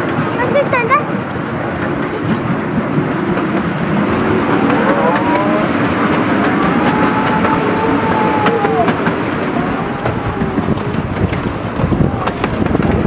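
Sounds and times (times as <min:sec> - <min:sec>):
train wheels clattering on rails: 0:00.0 - 0:13.0
wavering squeal: 0:03.9 - 0:11.3.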